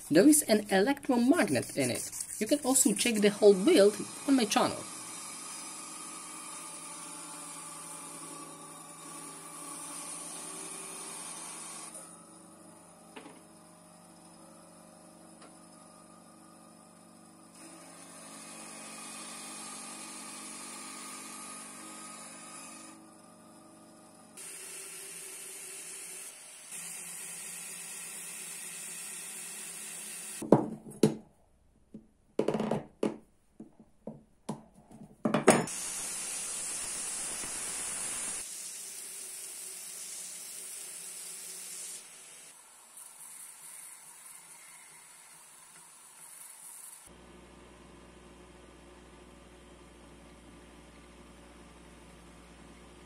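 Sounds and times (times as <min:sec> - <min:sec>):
belt grinder running: 0:01.2 - 0:12.2, 0:17.6 - 0:23.0, 0:24.4 - 0:30.4, 0:35.7 - 0:42.2
sharp knocks and clatters: 0:30.4 - 0:31.3, 0:31.9 - 0:35.7.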